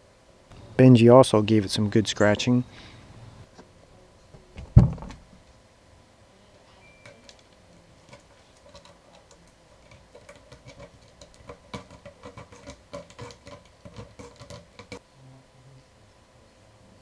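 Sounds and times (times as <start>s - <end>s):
cat clawing scratching post: 8.1s - 15.0s.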